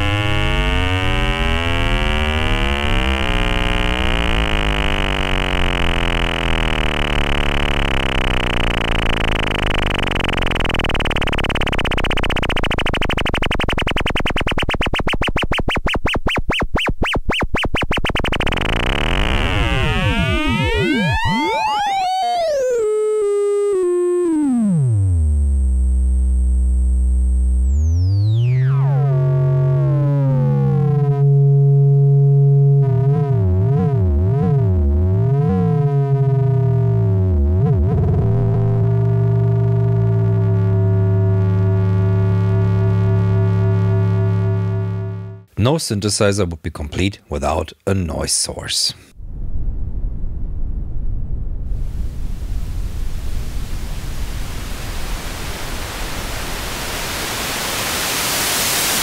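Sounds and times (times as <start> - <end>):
high synthesizer whistle: 0.0 - 25.8, 27.2 - 45.5
low synthesizer tone climbing: 0.0 - 45.5
buzzy synthesizer drone: 0.0 - 45.6.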